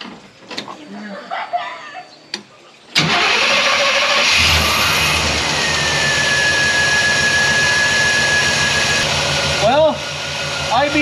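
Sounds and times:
truck engine starting and running: 2.9s - 11.0s
steady high whine: 3.8s - 11.0s.

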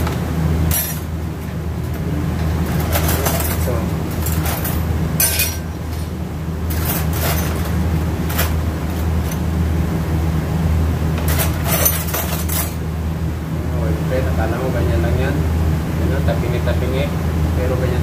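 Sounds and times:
low mechanical hum of machinery: 0.0s - 18.0s
metallic clinks and scrapes: 6.7s - 7.7s, 11.3s - 12.8s.

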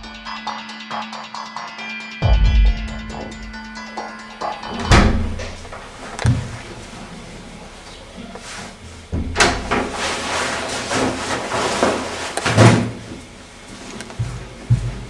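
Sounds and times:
door banging: 4.7s - 5.6s.

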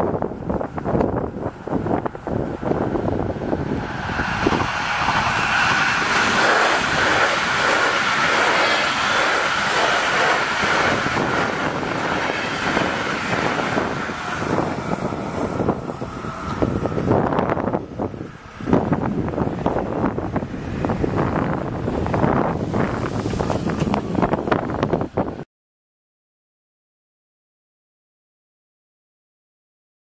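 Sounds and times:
train wheel and rail noise: 0.0s - 25.4s
steady high tone: 3.2s - 17.8s.

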